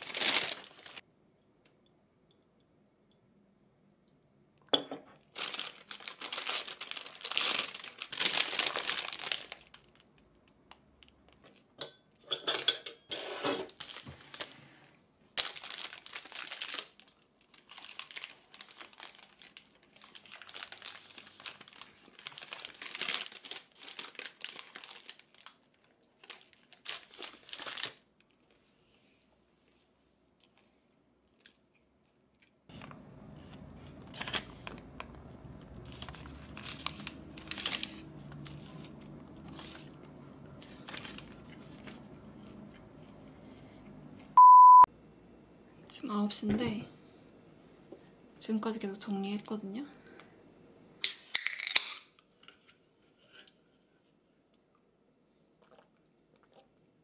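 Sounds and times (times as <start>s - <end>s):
paper wrapping crinkling: 0.0s - 1.0s, 5.3s - 11.7s, 13.7s - 14.6s, 15.4s - 28.6s, 32.7s - 43.2s.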